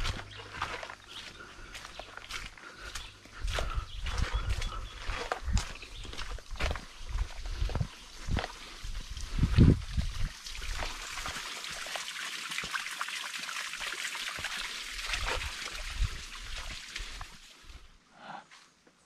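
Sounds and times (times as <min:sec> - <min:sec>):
footsteps on muddy track: 0:00.0 - 0:12.9, 0:13.8 - 0:17.9
water trickling: 0:07.2 - 0:17.8.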